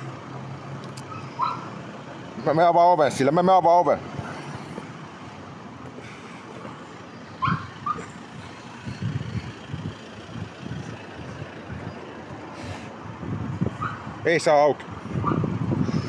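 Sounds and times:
vehicle engine noise: 0:00.0 - 0:16.0.

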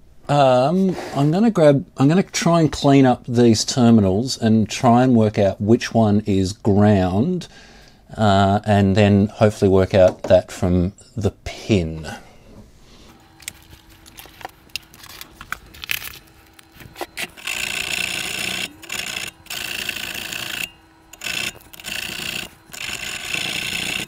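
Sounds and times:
scraping metal terminals: 0:13.3 - 0:24.0.

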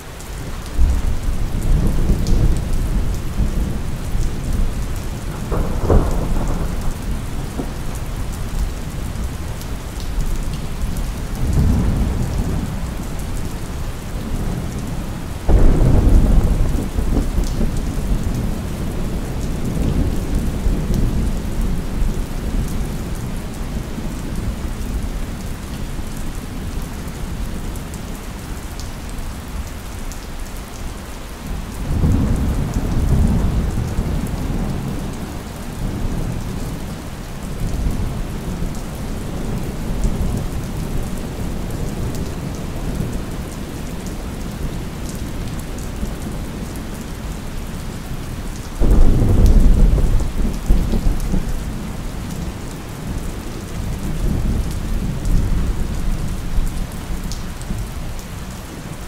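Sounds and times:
steady rain falling: 0:00.0 - 0:59.0
thunder rumbling: 0:00.7 - 0:09.8, 0:10.8 - 0:23.0, 0:48.8 - 0:51.9
loud thunder clap: 0:05.3 - 0:07.8.

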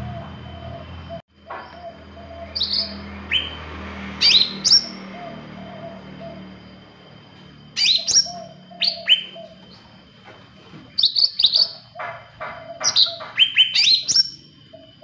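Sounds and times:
bird chirping downward sweeps: 0:00.0 - 0:07.0.

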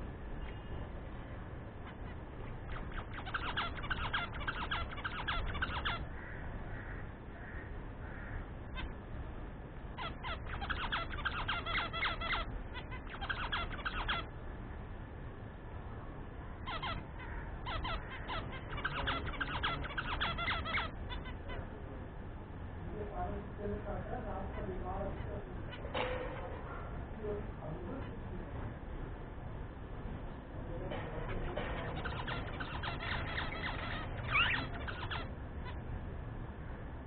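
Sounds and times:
budgerigars chirping: 0:01.8 - 0:06.9, 0:09.9 - 0:14.3, 0:16.6 - 0:21.7, 0:31.2 - 0:35.9.

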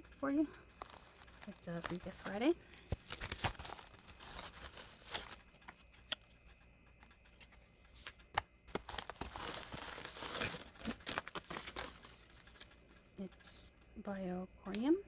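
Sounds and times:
sharp clicks: 0:00.0 - 0:15.0
packaging crinkling and tearing: 0:00.8 - 0:06.2, 0:08.7 - 0:12.7.

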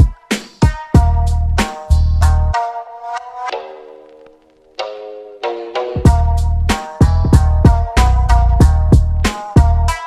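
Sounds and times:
background music with drum beat: 0:00.0 - 0:04.2, 0:04.8 - 0:10.0.

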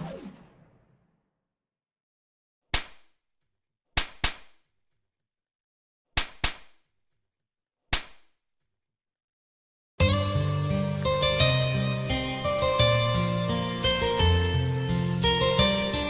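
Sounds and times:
sharp smack cracks with echo: 0:02.7 - 0:03.1, 0:04.0 - 0:04.6, 0:06.2 - 0:06.8, 0:07.9 - 0:08.3.

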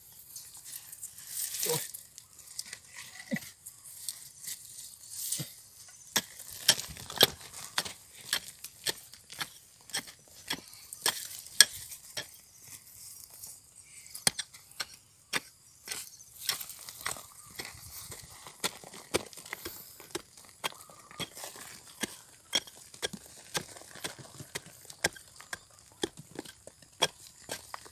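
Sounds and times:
hand tool scraping gravelly soil: 0:00.0 - 0:27.9.

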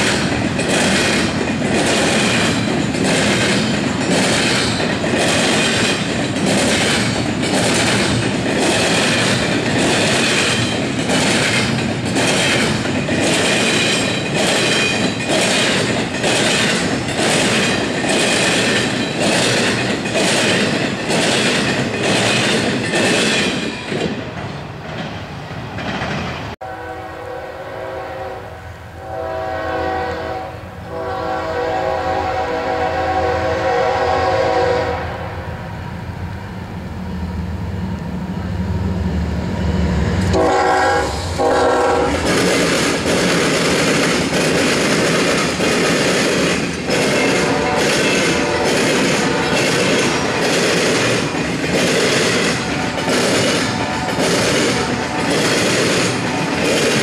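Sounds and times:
train wheels clicking over rails: 0:00.0 - 0:26.6, 0:37.6 - 0:57.0
diesel locomotive engine rumble: 0:00.0 - 0:57.0
locomotive air horn blasts: 0:26.6 - 0:35.4, 0:40.3 - 0:42.3, 0:47.4 - 0:50.3.

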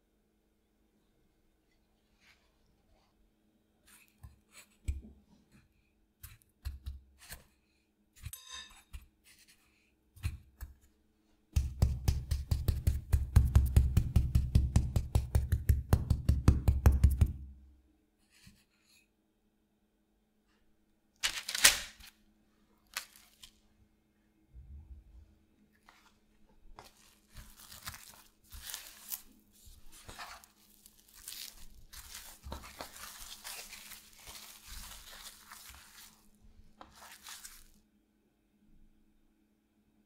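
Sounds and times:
spoon tapping breadcrumbs: 0:11.6 - 0:17.4, 0:29.9 - 0:36.2, 0:36.8 - 0:37.7.

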